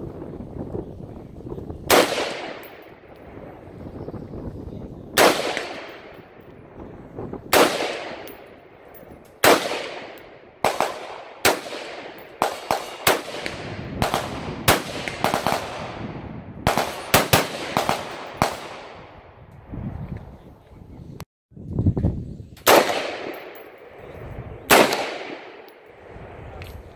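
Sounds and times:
rifle shots echoing: 1.9 - 3.4, 5.2 - 6.4, 7.5 - 19.2, 22.6 - 24.0, 24.6 - 26.1.

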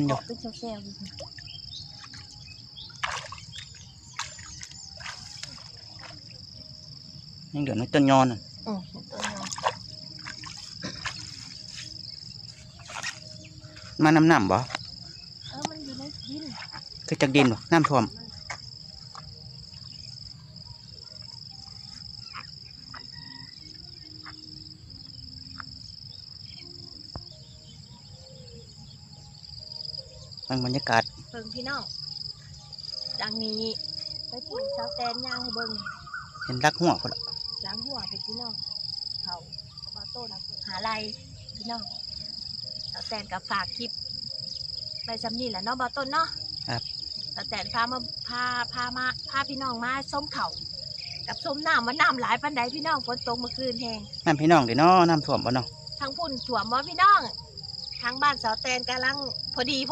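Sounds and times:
high insect drone: 0.0 - 59.9
feet splashing in shallow water: 1.0 - 6.4, 9.1 - 12.0.

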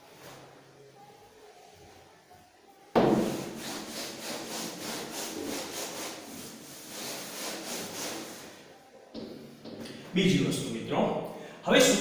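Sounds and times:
duster rubbing on chalkboard: 3.0 - 8.7.

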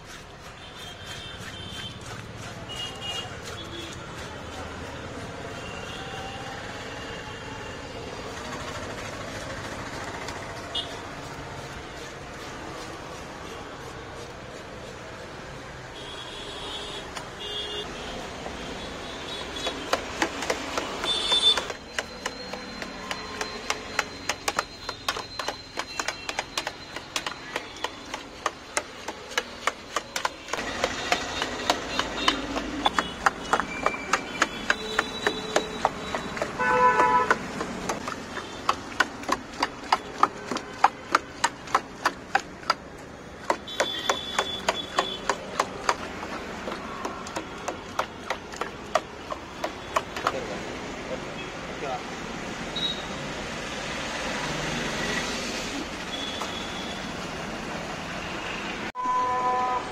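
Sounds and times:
blade chopping in metal pot: 19.4 - 50.4
vehicle horn honks: 36.6 - 37.3, 59.0 - 59.9.

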